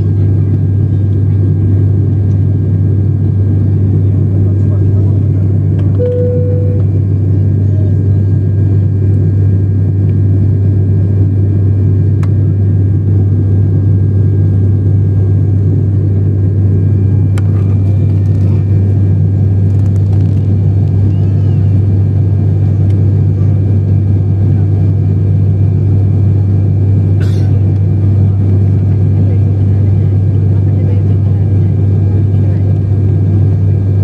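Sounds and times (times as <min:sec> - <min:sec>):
propeller plane engine drone: 0:00.0 - 0:34.0
single tone: 0:05.9 - 0:07.0.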